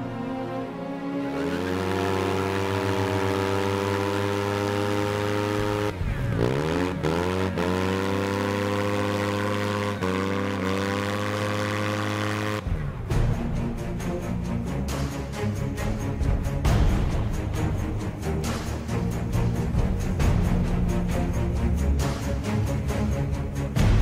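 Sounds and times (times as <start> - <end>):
music: 0.0 - 24.0
motorcycle engine revving: 1.2 - 13.3
rear tyre spinning: 1.3 - 12.6.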